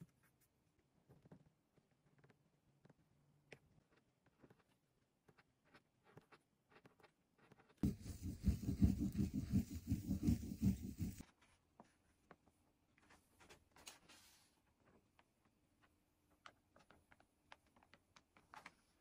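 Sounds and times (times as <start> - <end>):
hard scrubbing on paper: 7.8 - 11.2.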